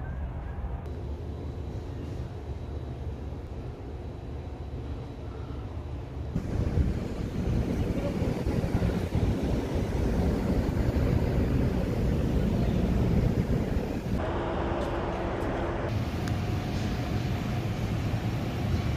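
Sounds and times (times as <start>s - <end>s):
wind buffeting microphone: 6.3s - 14.2s.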